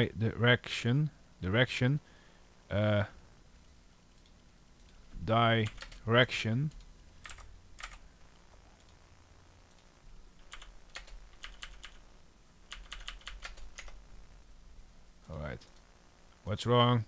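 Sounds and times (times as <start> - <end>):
typing on computer keyboard: 5.6 - 6.0, 6.8 - 8.0, 10.4 - 12.0, 12.7 - 14.0.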